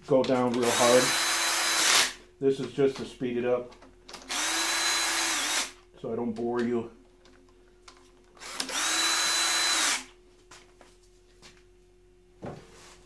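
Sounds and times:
cordless drill whirring: 0.6s - 2.2s, 4.2s - 5.8s, 8.4s - 10.1s.

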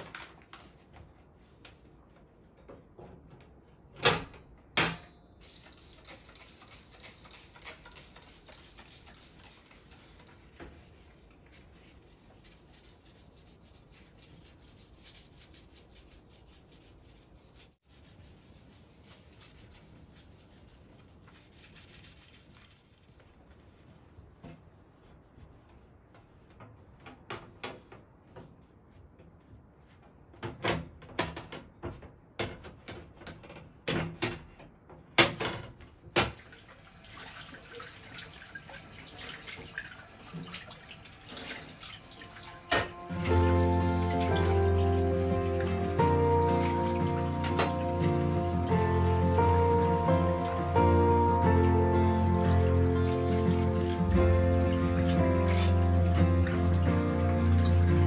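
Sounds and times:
hand scrubbing stove top: 5.5s - 30.2s, 36.4s - 58.0s.

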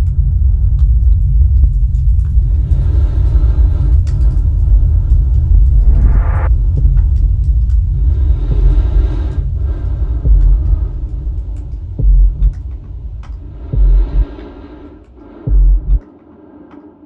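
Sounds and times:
heavy low booms: 0.0s - 16.0s
deep rumbling drone: 0.0s - 16.7s
faint clicks: 9.4s - 16.9s.

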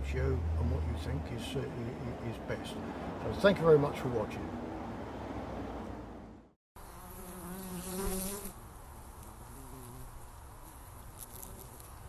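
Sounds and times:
bees buzzing: 6.8s - 8.6s
bee droning close by: 6.8s - 12.0s.

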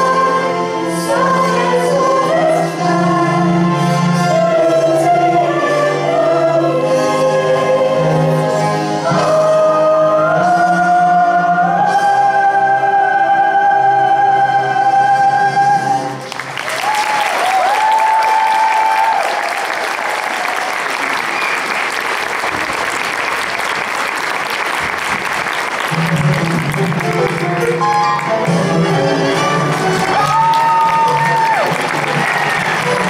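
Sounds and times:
cast and chorus singing: 0.0s - 16.2s
audience applause: 16.2s - 33.0s.

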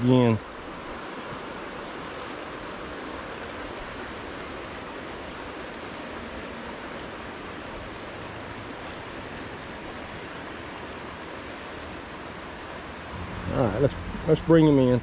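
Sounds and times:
river rushing over rocks: 0.1s - 15.0s.

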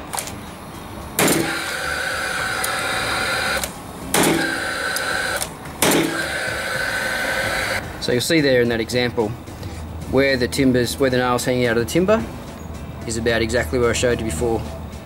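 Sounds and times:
nailer fan whirring: 0.0s - 8.5s
nail gun firing: 1.2s - 7.8s.

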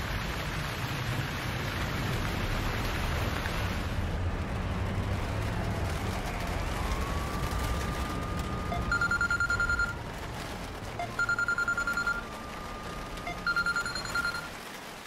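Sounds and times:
phone ringtone electronic trill: 8.8s - 10.0s, 11.0s - 12.2s, 13.3s - 14.5s.

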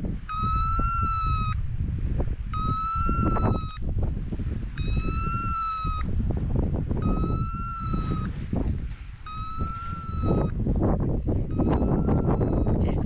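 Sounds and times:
wind rumbling on microphone: 0.0s - 13.0s
long electronic beeps: 0.3s - 1.6s, 2.5s - 3.8s, 4.8s - 6.0s, 7.0s - 8.3s, 9.2s - 10.6s, 11.5s - 12.9s.

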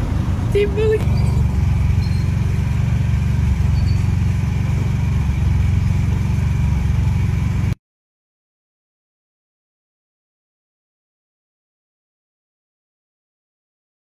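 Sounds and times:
steady low rumble: 0.0s - 7.8s.

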